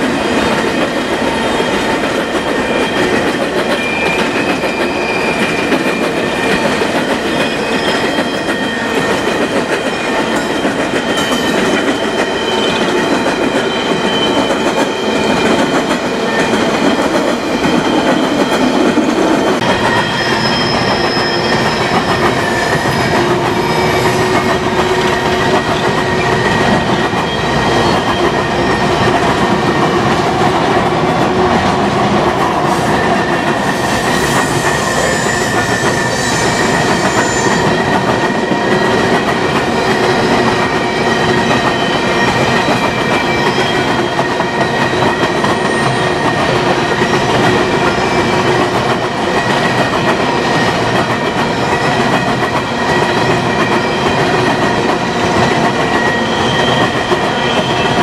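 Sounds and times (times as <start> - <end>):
high wheel squeal: 1.4 - 9.3, 9.9 - 18.8, 19.7 - 24.5, 32.8 - 38.0, 55.9 - 58.0.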